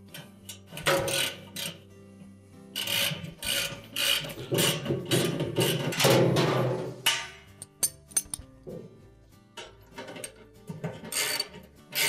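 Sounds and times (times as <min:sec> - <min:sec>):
soft background music: 0:00.0 - 0:12.0
ratchet clicks: 0:02.8 - 0:04.3.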